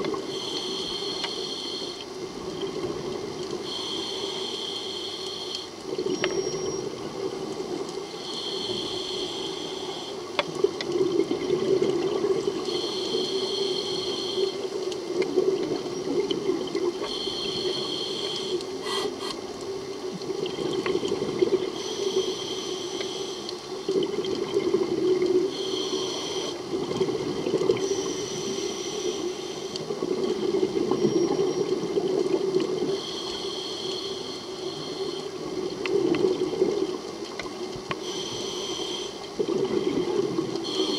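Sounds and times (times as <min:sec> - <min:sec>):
regulator hissing inhale: 0:00.2 - 0:02.1, 0:03.6 - 0:05.8, 0:08.1 - 0:10.3, 0:12.6 - 0:14.8, 0:17.0 - 0:19.4, 0:21.7 - 0:23.7, 0:25.5 - 0:26.6, 0:27.8 - 0:30.0, 0:32.8 - 0:35.5, 0:37.9 - 0:39.3, 0:40.6 - 0:40.9
exhaled bubbles gurgling: 0:05.8 - 0:09.0, 0:10.4 - 0:18.8, 0:19.6 - 0:22.8, 0:23.7 - 0:40.9.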